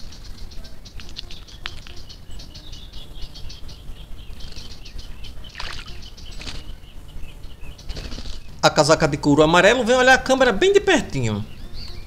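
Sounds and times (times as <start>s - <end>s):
bird splashing in water: 5.5s - 6.6s.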